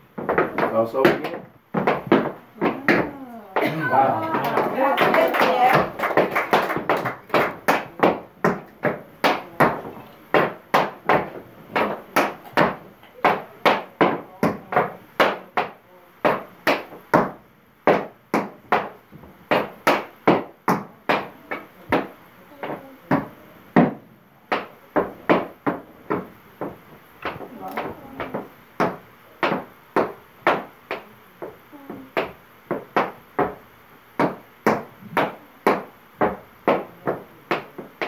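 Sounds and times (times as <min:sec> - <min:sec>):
tap shoes clicking on wood: 0:00.2 - 0:33.6, 0:34.2 - 0:38.0.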